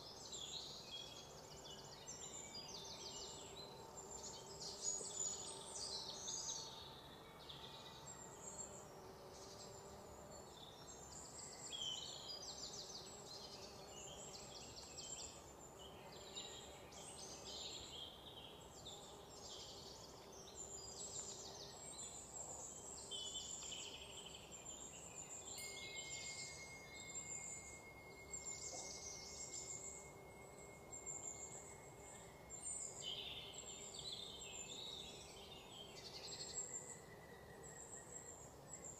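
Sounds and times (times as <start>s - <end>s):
insects trilling: 24.8s - 34.7s.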